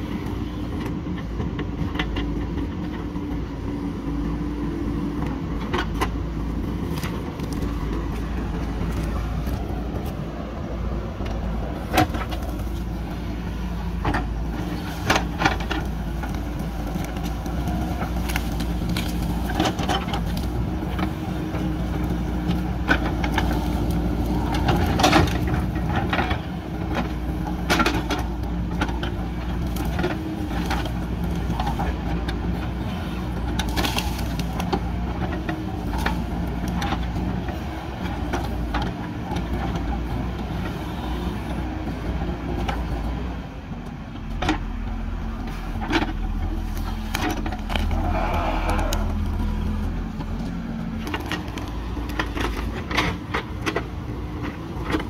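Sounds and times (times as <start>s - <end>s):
diesel engine under load: 0.0s - 55.0s
branches cracking: 6.6s - 10.2s, 14.2s - 25.5s, 33.3s - 37.6s, 45.4s - 53.1s.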